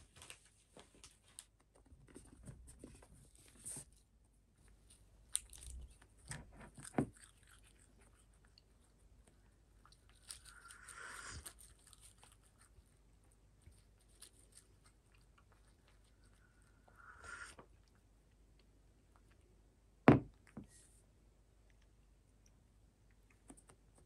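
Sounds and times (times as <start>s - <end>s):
cat chewing and crunching: 0.8s - 19.7s.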